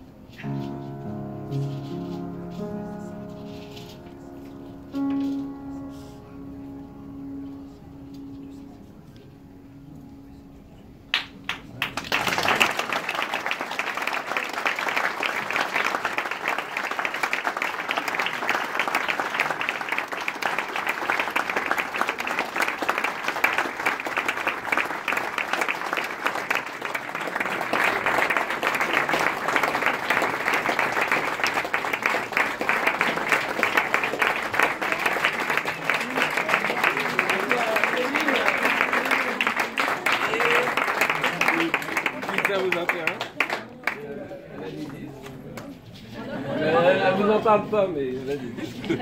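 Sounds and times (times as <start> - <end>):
piano note: 0.0 - 12.9
audience applause: 11.1 - 46.8.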